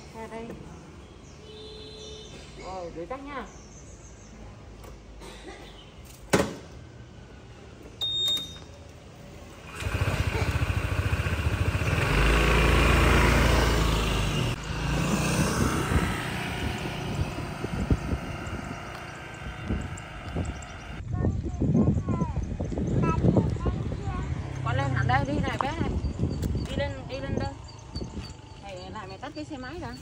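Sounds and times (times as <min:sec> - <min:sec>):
vehicle engine passing: 0:09.7 - 0:21.0, 0:23.1 - 0:26.2.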